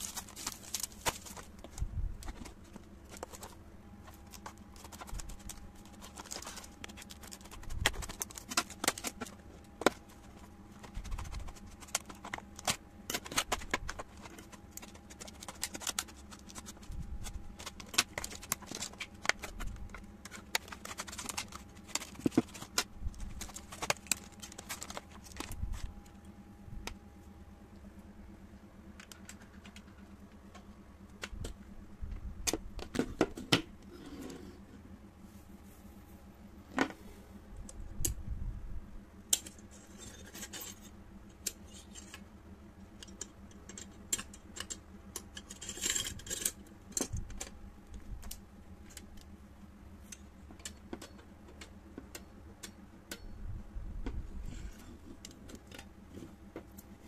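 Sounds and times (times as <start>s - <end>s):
plastic packaging crackling: 0.0s - 25.9s.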